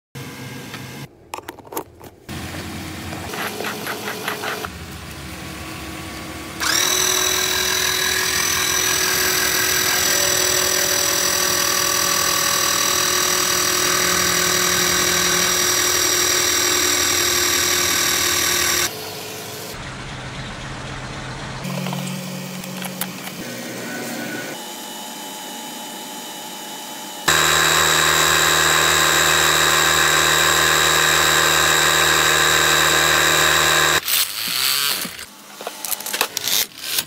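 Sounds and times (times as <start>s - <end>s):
electric car jack whining: 6.6s - 18.9s, 27.2s - 35.3s.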